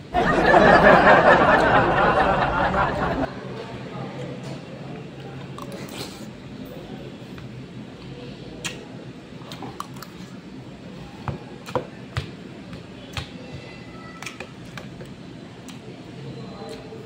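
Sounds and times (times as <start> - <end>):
steady low hum: 0.0 - 3.4.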